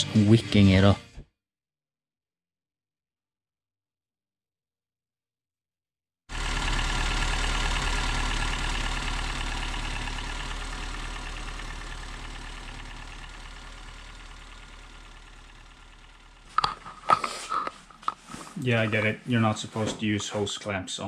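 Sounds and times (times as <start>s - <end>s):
turbocharged engine idling: 6.3s - 18.3s.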